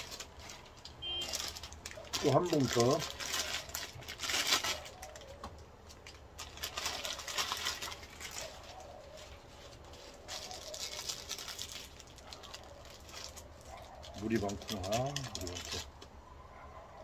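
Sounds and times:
plastic packet crinkling: 0.0s - 16.0s
dove cooing: 4.7s - 5.6s, 8.2s - 10.8s.

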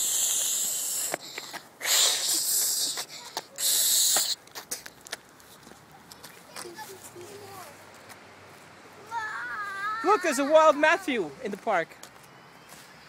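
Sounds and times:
girl hissing through teeth: 0.0s - 4.4s.

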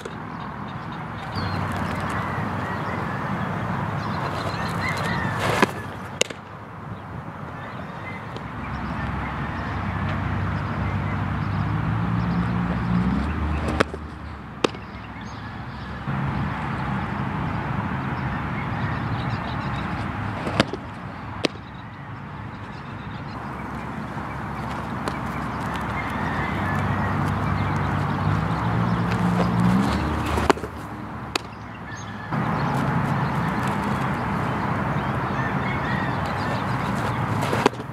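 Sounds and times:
outdoor background noise: 0.0s - 37.9s
softball smacking into mitt: 29.1s - 31.6s.

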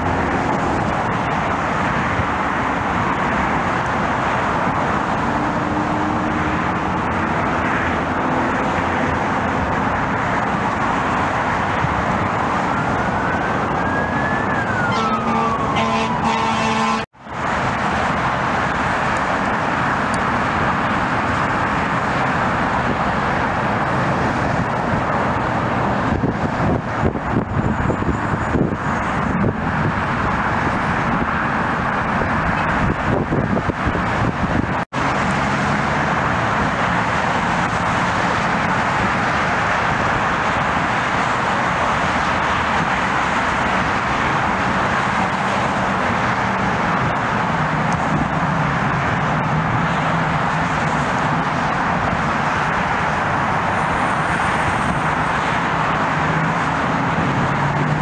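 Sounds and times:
jet engines roaring on takeoff: 0.0s - 58.0s
traffic rumble: 0.0s - 58.0s
siren rising and falling: 10.5s - 17.0s.

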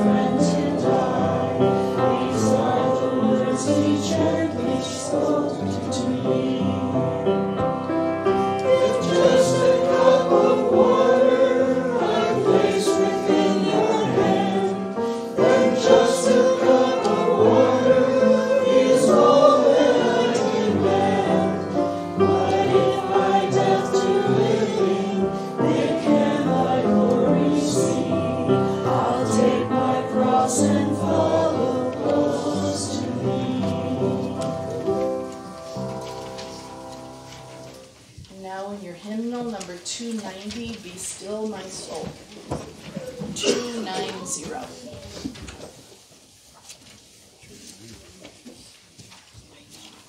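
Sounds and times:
congregation singing a hymn: 0.0s - 38.0s, 40.7s - 45.3s
musical accompaniment: 0.0s - 38.0s.

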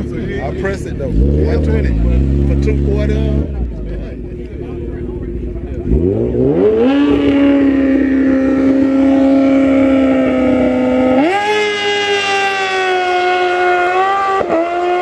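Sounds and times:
sport bike engine revving: 0.0s - 15.0s.

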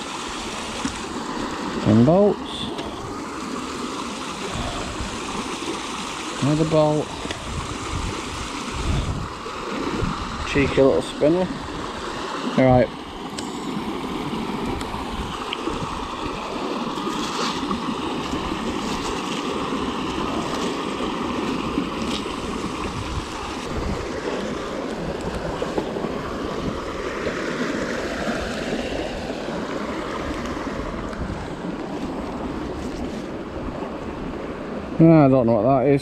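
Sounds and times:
flowing river water: 0.0s - 36.0s
wind on microphone: 4.4s - 5.4s, 6.6s - 12.9s, 13.6s - 34.8s.

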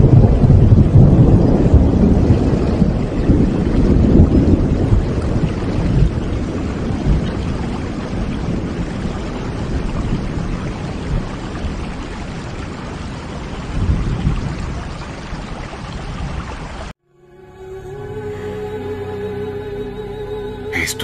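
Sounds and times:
deep rumble: 0.0s - 8.8s, 17.0s - 21.0s
heavy rain and wind: 0.0s - 16.9s, 17.6s - 21.0s.

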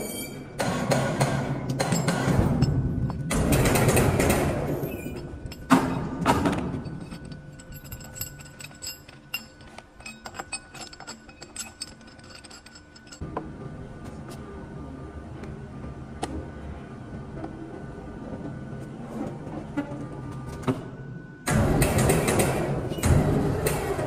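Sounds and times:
metal tools clinking on steel: 1.7s - 3.4s, 4.7s - 13.2s
steady low noise: 13.2s - 23.8s.

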